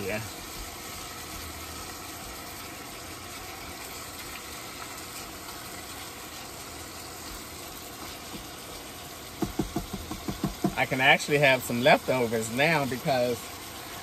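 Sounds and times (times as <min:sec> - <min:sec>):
meat sizzling in a pot: 0:00.0 - 0:14.0.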